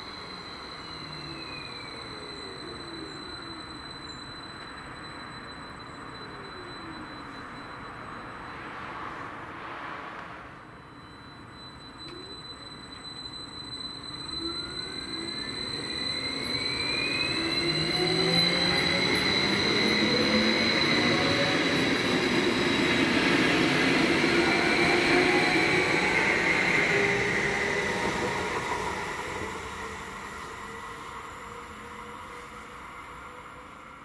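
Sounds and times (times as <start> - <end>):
electric train motor whine: 11.6 - 33.8.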